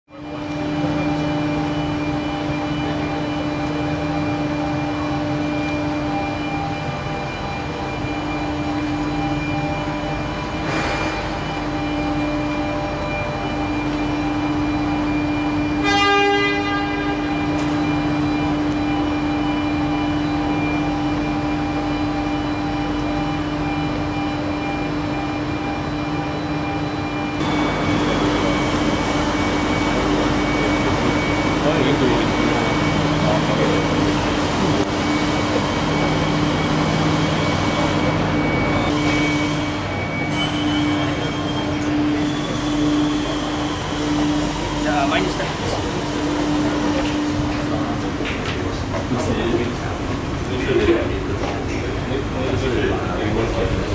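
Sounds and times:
train electrical hum: 0:00.1 - 0:53.9
short horn-like tone: 0:15.0 - 0:19.3.

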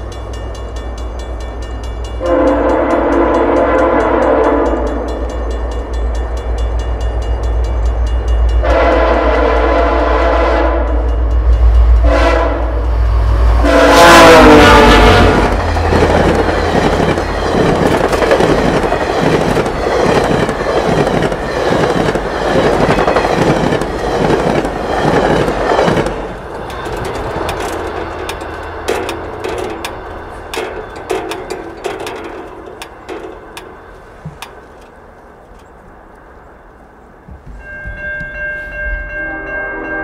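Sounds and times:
train rushing past: 0:00.0 - 0:40.0
train wheels clattering rhythmically: 0:14.9 - 0:34.5.

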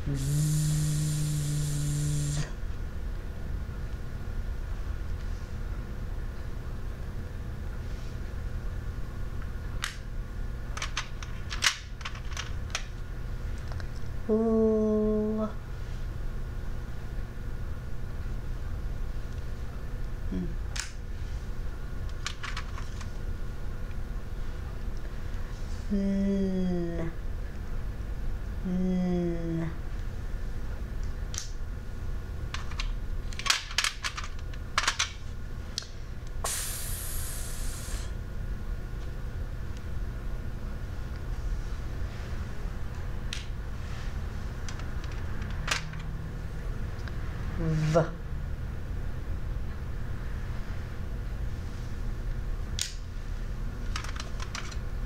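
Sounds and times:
steady hiss: 0:00.0 - 0:02.6, 0:36.4 - 0:38.2
low background hum: 0:00.0 - 0:55.0.

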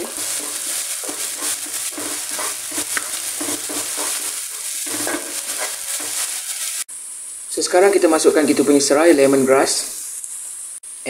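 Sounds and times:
wooden spatula scraping wok: 0:00.0 - 0:06.9
vegetables sizzling in oil: 0:00.0 - 0:11.0.

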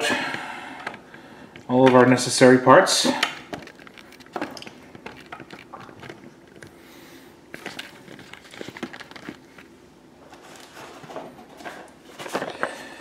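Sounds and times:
plastic packs clicking and rustling: 0:03.1 - 0:06.8, 0:07.5 - 0:13.0.

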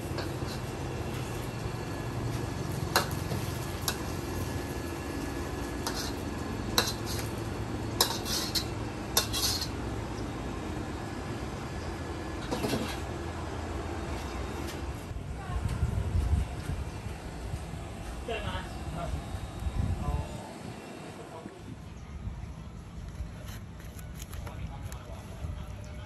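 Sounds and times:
steady low rumble: 0:15.0 - 0:23.1.

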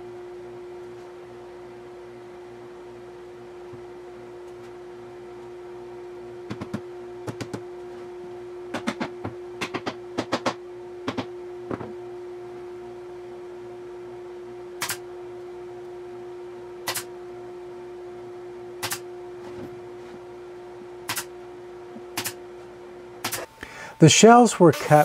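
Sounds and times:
steady low hum: 0:00.0 - 0:25.0
pneumatic nailer firing: 0:14.8 - 0:15.0, 0:16.8 - 0:17.1, 0:18.8 - 0:19.0, 0:21.1 - 0:21.3, 0:22.2 - 0:22.4, 0:23.2 - 0:23.5.

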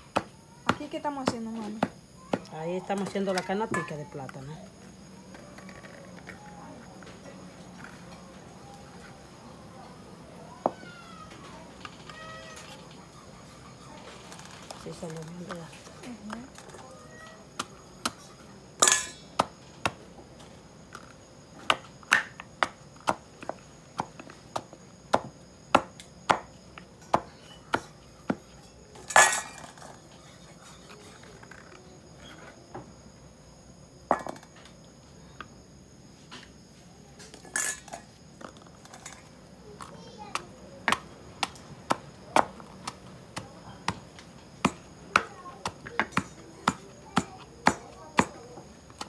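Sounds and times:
wooden pestle pounding in mortar: 0:44.6 - 0:48.4.

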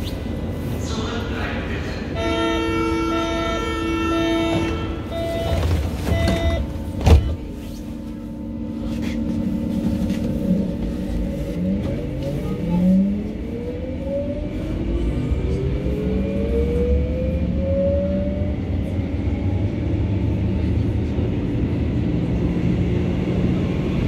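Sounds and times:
door warning beeps: 0:04.5 - 0:07.4.

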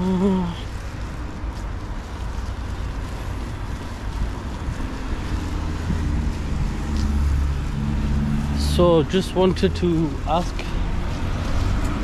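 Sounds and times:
vehicle engine hum: 0:00.0 - 0:12.0
wind on microphone: 0:03.3 - 0:08.6.

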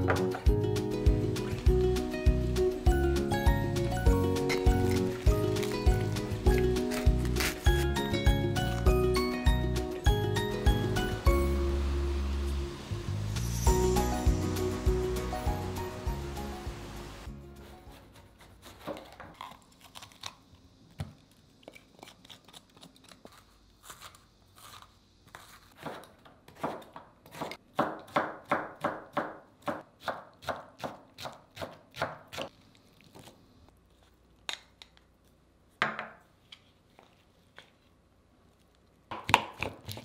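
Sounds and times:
knife chopping on cutting board: 0:24.7 - 0:32.5.

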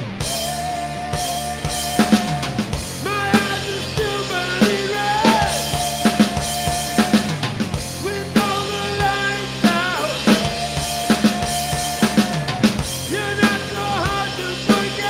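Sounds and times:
drum kit beating: 0:00.0 - 0:15.0
electric bass guitar: 0:00.0 - 0:15.0
person singing: 0:00.3 - 0:07.3, 0:08.0 - 0:15.0.

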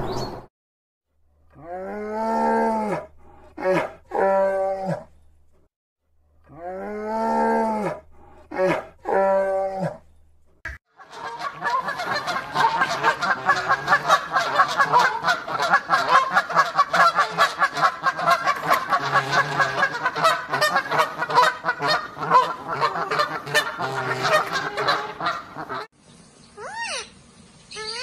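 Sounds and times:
geese honking: 0:11.0 - 0:25.9.

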